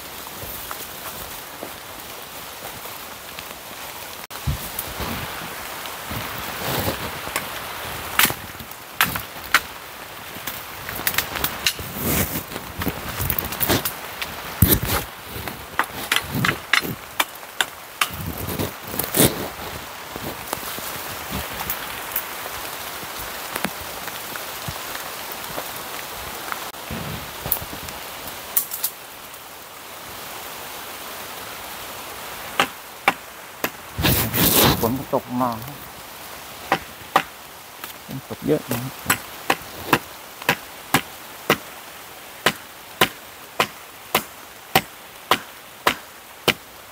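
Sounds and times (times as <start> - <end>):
rain hissing: 0.0 - 46.9
wood and twigs snapping: 7.0 - 9.8, 10.4 - 19.3.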